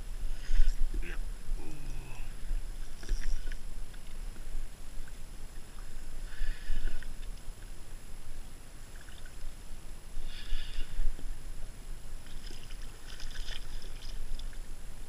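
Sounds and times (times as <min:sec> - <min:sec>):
wind rumble on microphone: 0:00.0 - 0:15.0
water lapping against kayak hull: 0:00.2 - 0:07.9, 0:12.2 - 0:14.7.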